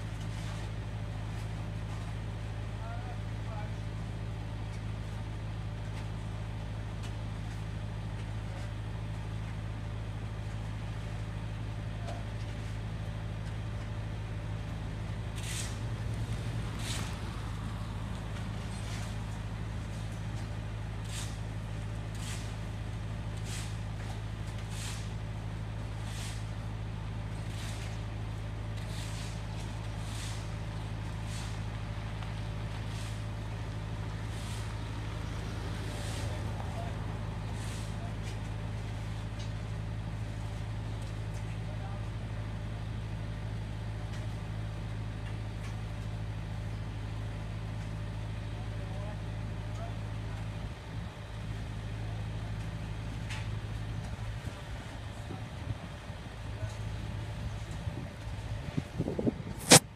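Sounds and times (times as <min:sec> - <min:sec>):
low machinery engine drone: 0:00.0 - 0:59.9
car passing: 0:16.0 - 0:18.8, 0:34.8 - 0:37.4.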